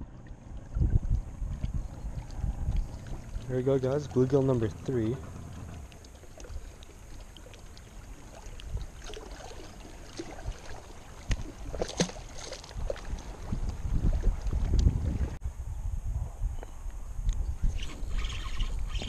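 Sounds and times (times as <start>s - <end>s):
wind buffeting microphone: 0.0s - 6.8s, 10.2s - 19.0s
fish splashing into water: 5.6s - 13.5s.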